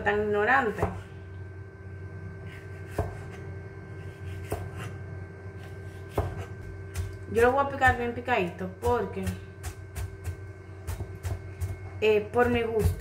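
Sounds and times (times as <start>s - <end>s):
low hum: 0.0s - 13.0s
knife chopping on cutting board: 0.7s - 1.0s, 2.5s - 5.0s, 5.6s - 8.2s, 8.8s - 13.0s.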